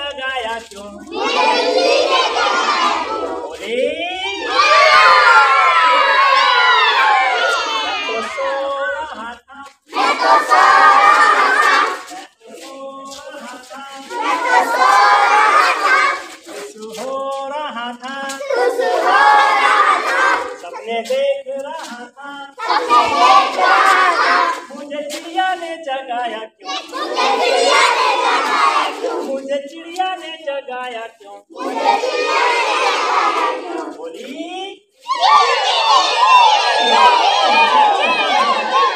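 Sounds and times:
single children's voices: 1.0s - 3.6s, 4.3s - 8.7s, 14.1s - 16.7s, 26.6s - 29.4s, 31.5s - 34.1s, 35.0s - 38.9s
children shouting in unison: 1.1s - 3.6s, 4.2s - 8.7s, 10.0s - 12.1s, 14.1s - 16.4s, 18.4s - 20.7s, 22.6s - 24.7s, 26.7s - 29.3s, 31.6s - 33.9s, 35.0s - 38.9s.

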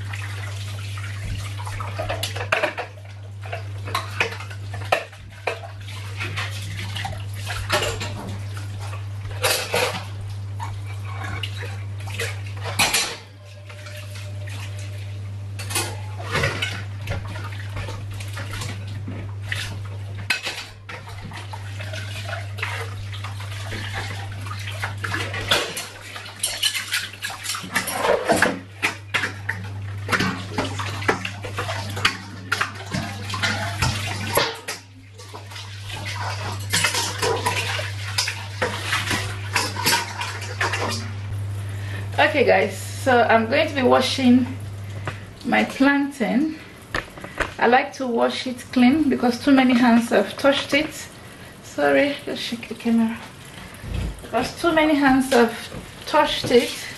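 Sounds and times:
steady low hum: 0.0s - 56.9s
tap water running: 0.0s - 56.9s
dishes clattering in a steel sink: 1.2s - 14.8s, 15.6s - 41.1s.

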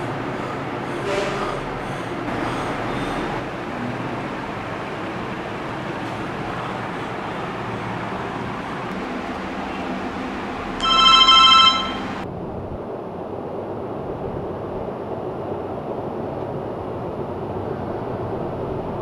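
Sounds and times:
rushing background noise: 0.0s - 19.0s
phone message chime: 10.8s - 12.2s.

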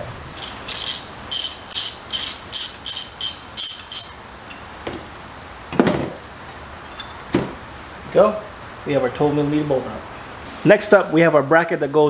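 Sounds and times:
ratchet clicking: 0.3s - 4.2s.

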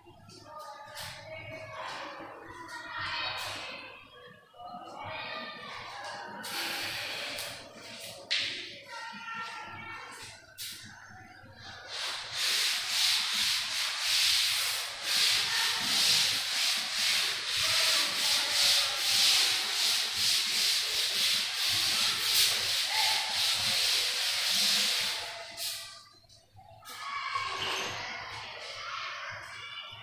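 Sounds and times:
duster rubbing chalkboard: 11.9s - 25.9s.

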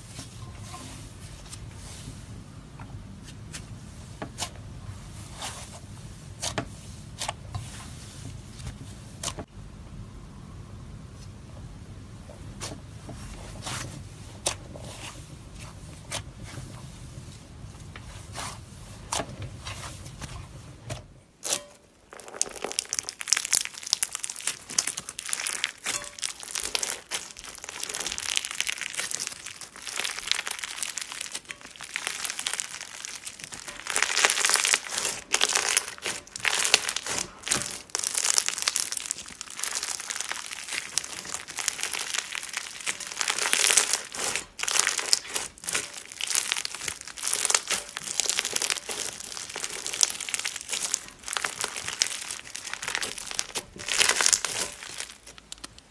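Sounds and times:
slime soft crinkling: 0.0s - 2.5s, 21.4s - 55.9s
beaded slime crunching: 21.4s - 55.9s.

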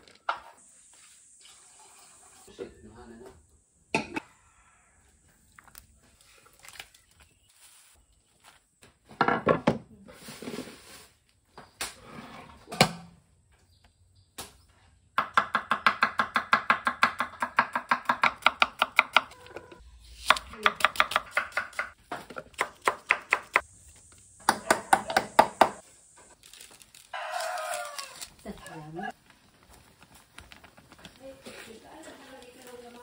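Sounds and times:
wooden pestle pounding in mortar: 15.2s - 19.3s.

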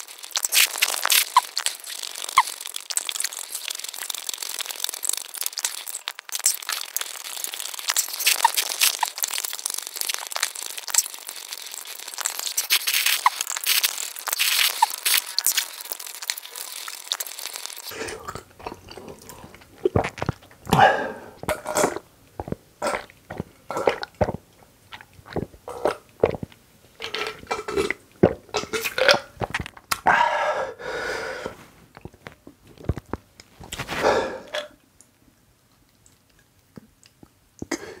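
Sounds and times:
chewing and mouth sounds: 0.0s - 30.1s, 31.9s - 37.9s
swallowing gulps: 14.4s - 30.3s, 31.5s - 34.8s.

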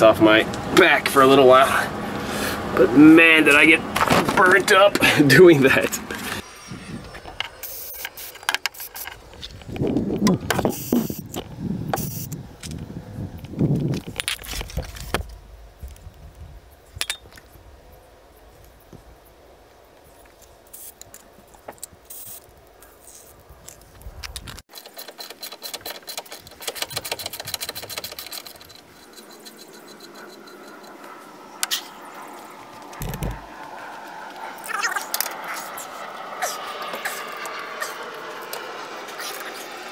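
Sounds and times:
rapid metallic clicking: 24.7s - 31.0s.

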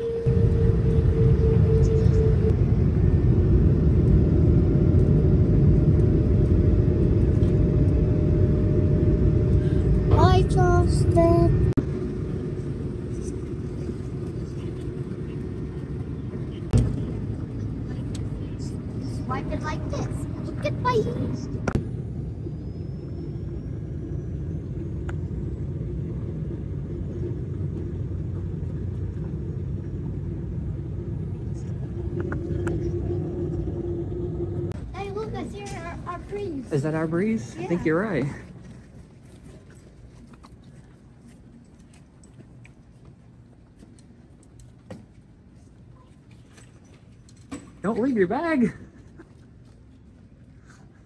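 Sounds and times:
faint engine whine: 0.0s - 51.0s
jet engines rumbling: 0.0s - 51.0s.

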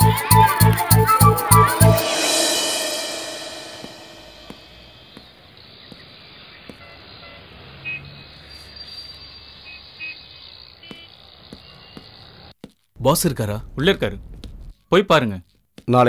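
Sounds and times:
high-pitched peeps: 0.0s - 4.5s
city traffic hum: 4.3s - 12.6s.

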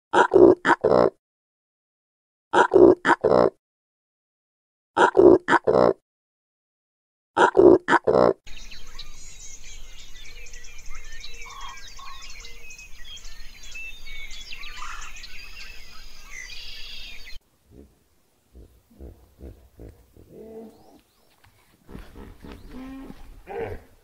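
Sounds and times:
birds chirping and trilling: 8.1s - 24.0s
steady background hiss: 17.4s - 21.4s.

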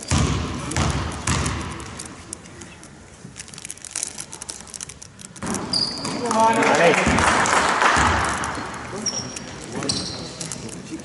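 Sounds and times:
basketball bouncing on wooden floor: 0.0s - 1.9s, 8.0s - 8.6s
low hall noise: 0.0s - 11.0s.

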